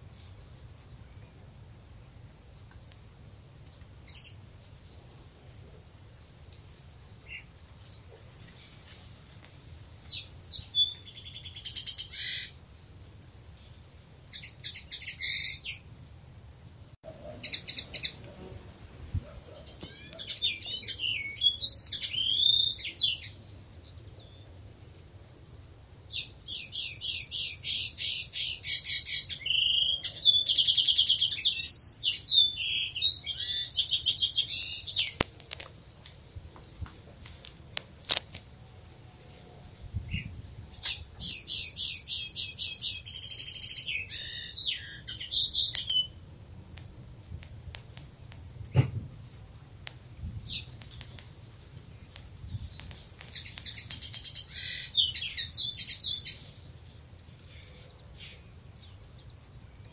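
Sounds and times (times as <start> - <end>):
robin singing: 7.1 - 9.0, 10.0 - 13.3, 14.0 - 15.9, 17.1 - 18.5, 19.2 - 24.6, 26.0 - 36.8, 39.9 - 46.2, 46.8 - 59.9.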